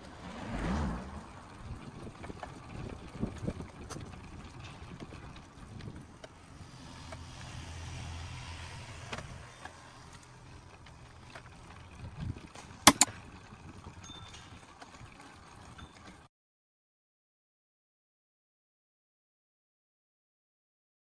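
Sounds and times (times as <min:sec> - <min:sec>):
sharp clicks: 0:12.9 - 0:13.1.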